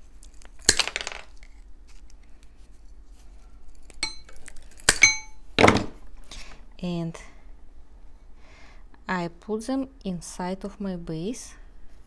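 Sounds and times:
metal tools clinking: 4.0 - 5.4.

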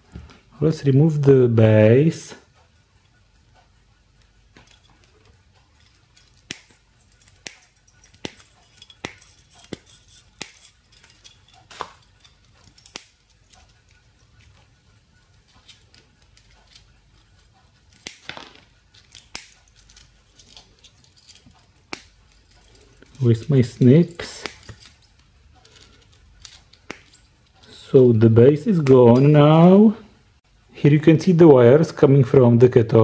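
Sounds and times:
hand snips clicking: 5.8 - 13.7, 17.9 - 20.6, 21.2 - 23.2, 24.2 - 25.0, 25.7 - 27.2.

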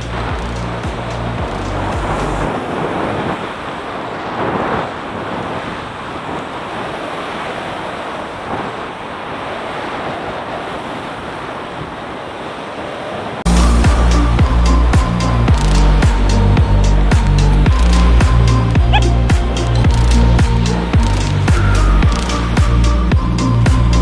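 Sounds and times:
sea surf washing onto shore: 0.0 - 24.0.

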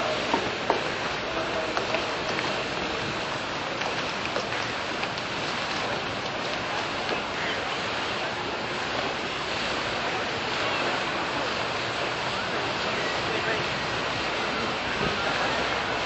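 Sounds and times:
river water splashing against hull: 0.0 - 16.0.

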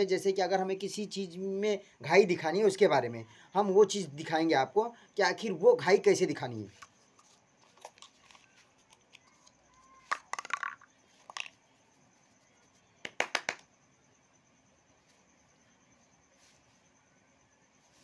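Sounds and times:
tobacco rubbing in palm: 6.7 - 13.6.

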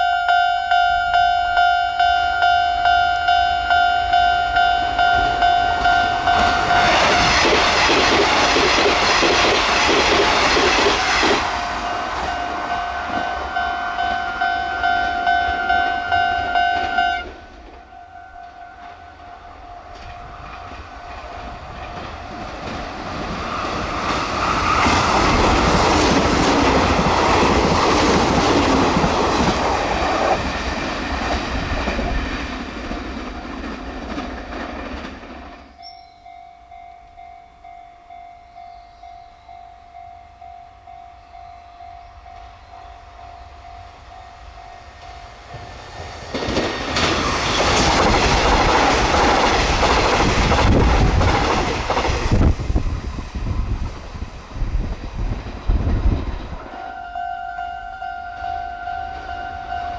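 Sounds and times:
level crossing warning bell: 0.0 - 7.5, 11.7 - 22.4, 35.7 - 46.0, 56.8 - 59.9
train passing: 0.0 - 59.9.

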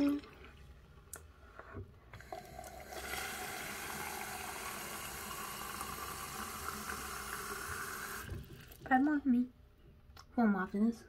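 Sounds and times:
tap water running into container: 2.1 - 8.9.

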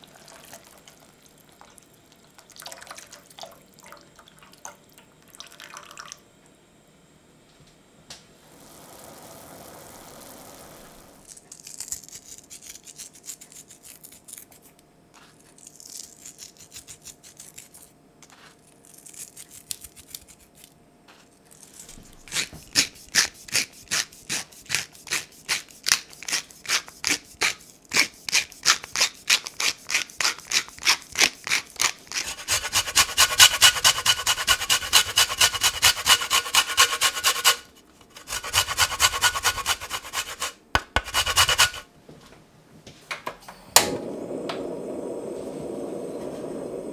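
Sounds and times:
seasoning rasping strokes: 8.4 - 17.8, 21.6 - 41.9.

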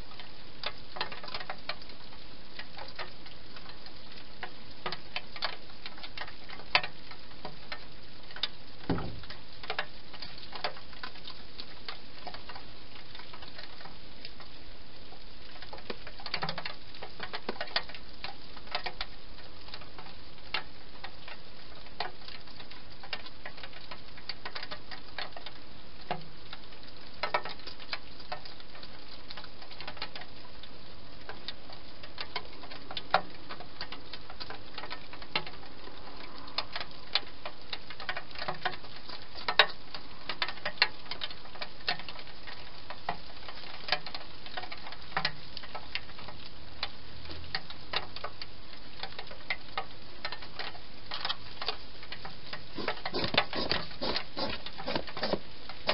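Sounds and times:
dull knock: 8.9 - 9.2
steady hiss: 50.9 - 55.9.

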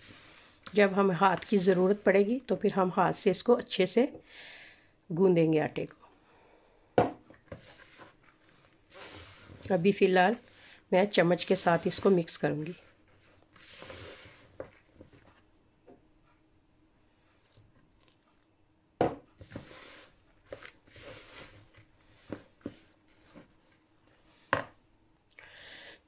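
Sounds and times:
spatula scraping dough in bowl: 0.0 - 2.3, 8.9 - 15.3, 19.4 - 23.5.

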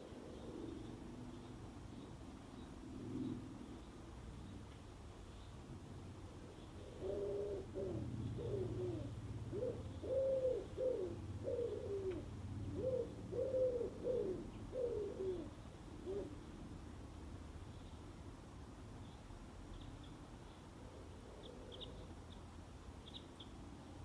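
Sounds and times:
pigeon cooing: 0.0 - 1.2, 6.3 - 16.5, 21.0 - 22.0.

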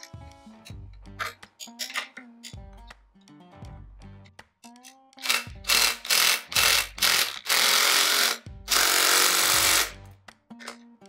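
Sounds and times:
background music with low beat: 0.0 - 11.0
ratchet wrench clicking: 5.2 - 10.0.

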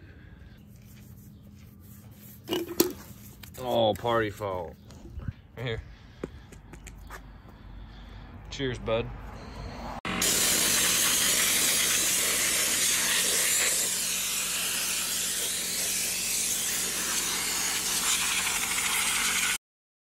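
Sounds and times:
compressed air hissing: 10.2 - 19.6.

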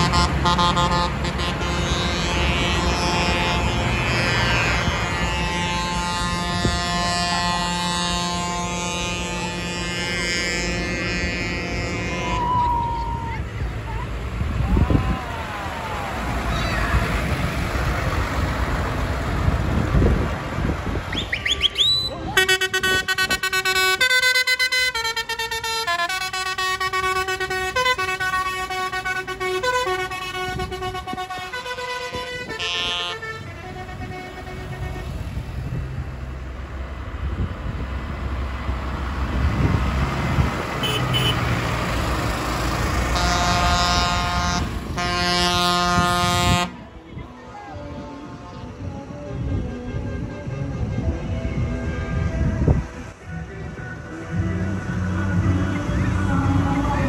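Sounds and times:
musical horn playing a tune: 0.0 - 12.7, 22.1 - 35.3, 40.8 - 41.5, 43.1 - 47.1
tractor engines running: 0.0 - 57.0.

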